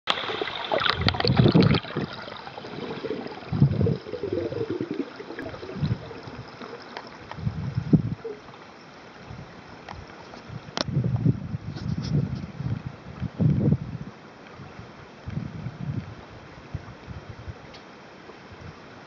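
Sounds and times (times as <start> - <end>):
muffled underwater water swishing: 0.1 - 10.8
steady hiss: 0.1 - 19.0.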